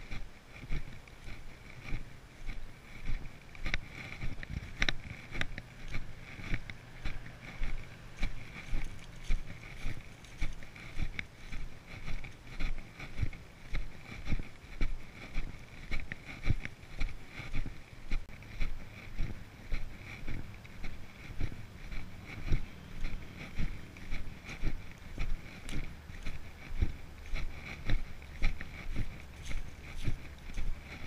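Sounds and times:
footsteps on grass: 0.0s - 31.0s.

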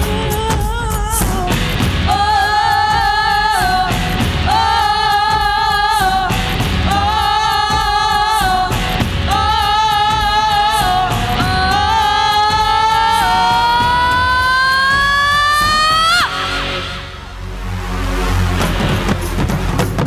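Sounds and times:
live band with drums and bass: 0.0s - 16.3s
group of people singing: 1.2s - 16.2s.

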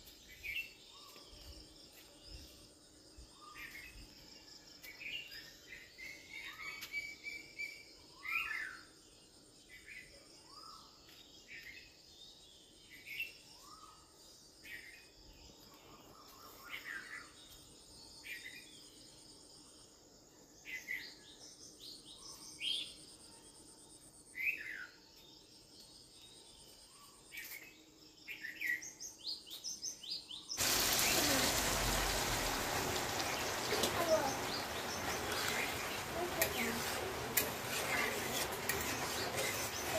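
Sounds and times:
water sizzling in hot pan: 30.6s - 39.9s
metal spatula scraping pan: 35.3s - 39.9s.

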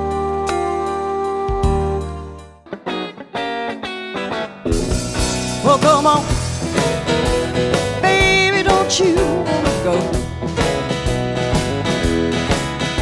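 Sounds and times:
electric guitar lead notes: 0.0s - 13.0s
strummed acoustic guitar: 2.7s - 13.0s
steady beat: 4.7s - 13.0s.

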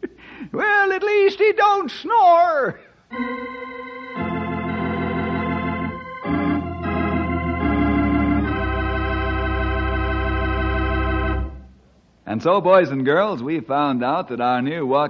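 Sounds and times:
organ chords: 3.1s - 11.8s.

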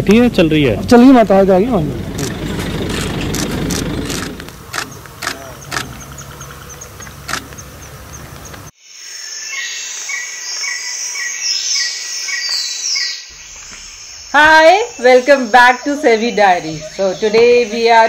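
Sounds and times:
low hum: 0.0s - 8.7s
insects and birds chirping: 0.0s - 18.0s
sharp clicks: 2.2s - 8.7s.

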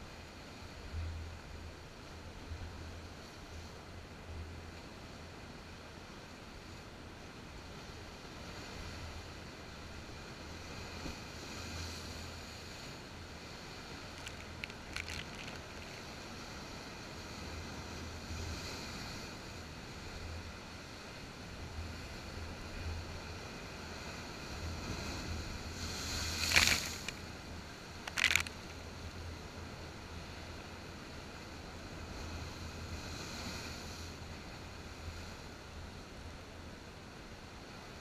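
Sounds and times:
waves breaking against rocks: 10.6s - 18.0s, 23.7s - 29.1s.

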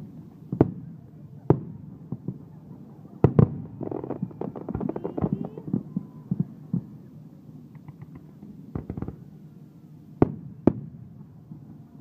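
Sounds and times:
fireworks crackling: 0.0s - 7.0s
fireworks bangs: 0.5s - 7.0s, 7.8s - 9.3s.

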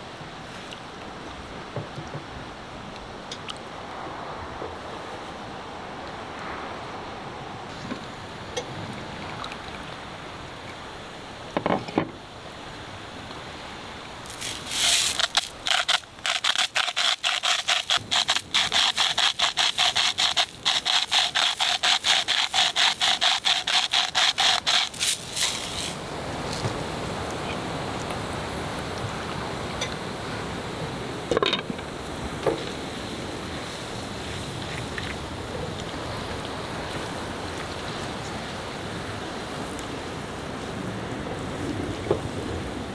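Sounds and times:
salt grinder crunching: 14.3s - 26.0s.

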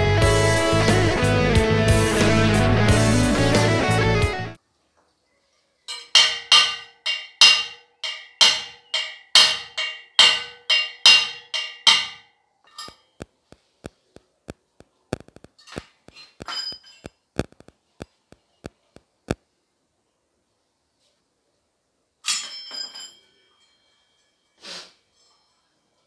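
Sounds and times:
metal part struck ringing: 5.9s - 13.0s.

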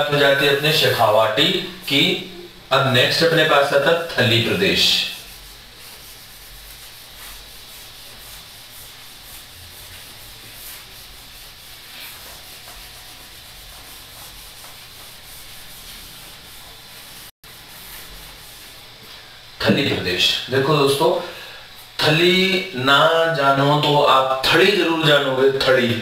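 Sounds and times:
eraser scrubbing whiteboard: 0.0s - 19.3s.

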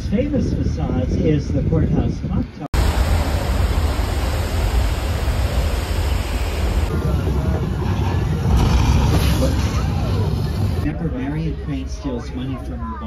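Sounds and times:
tram rumbling: 2.8s - 11.0s.

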